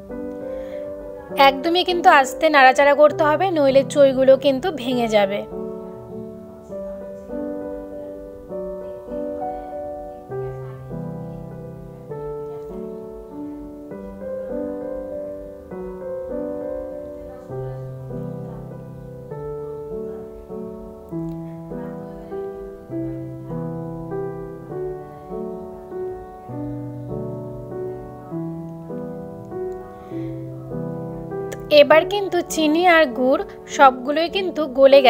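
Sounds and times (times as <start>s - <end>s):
gentle piano music: 0.0s - 35.0s.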